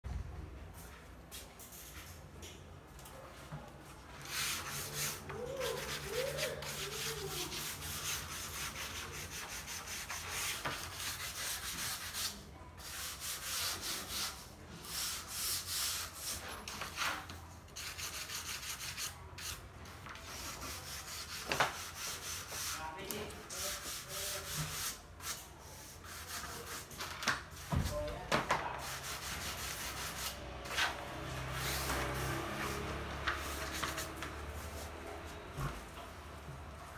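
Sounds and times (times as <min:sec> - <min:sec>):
sanding block scraping wood: 0:04.2 - 0:17.2, 0:17.8 - 0:19.6, 0:20.2 - 0:27.0, 0:28.8 - 0:35.4.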